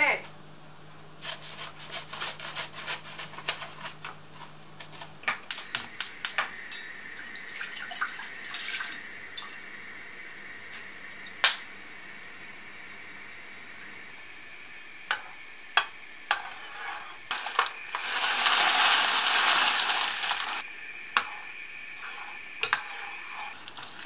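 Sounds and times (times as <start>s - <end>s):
water pouring into saucepan: 6.7s - 9.6s, 17.3s - 20.6s, 22.9s - 24.0s.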